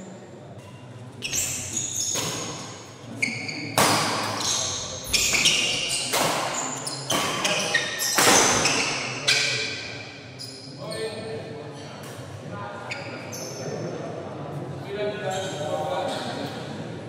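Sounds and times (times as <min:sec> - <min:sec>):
shoes squeaking on court: 0:00.6 - 0:09.8, 0:12.9 - 0:13.8.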